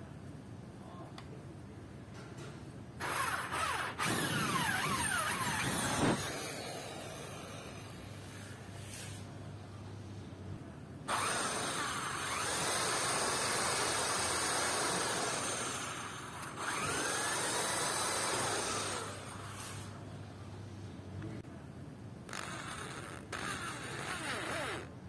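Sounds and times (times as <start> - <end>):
electric drill boring into wood: 3.0 - 8.0, 11.1 - 19.8, 22.3 - 24.9.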